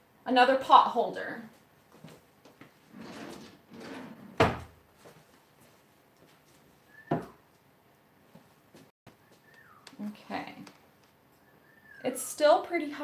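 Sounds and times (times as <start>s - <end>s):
drawer rummaging and sliding: 2.9s - 4.7s
drawer shutting with a bang: 3.0s - 4.8s.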